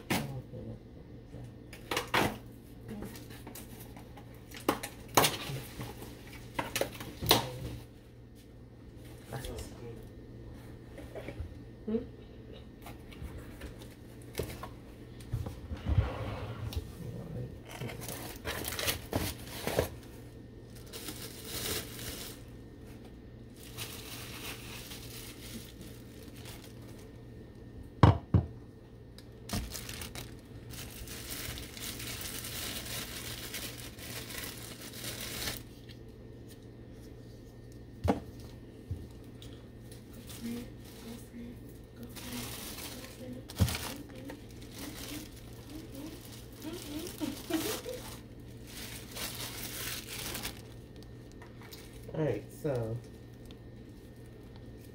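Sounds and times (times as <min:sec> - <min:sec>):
packing material crinkling: 0:17.6 - 0:27.6, 0:29.2 - 0:37.1, 0:42.0 - 0:54.9.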